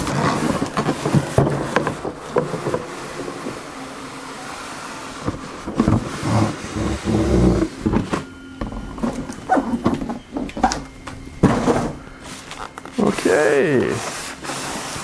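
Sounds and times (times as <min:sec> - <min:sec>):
cardboard carton sliding and scraping: 0:00.0 - 0:08.4, 0:11.4 - 0:15.0.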